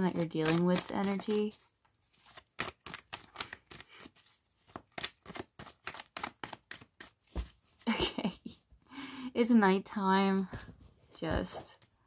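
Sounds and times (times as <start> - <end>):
cards being shuffled: 0.0 - 7.6.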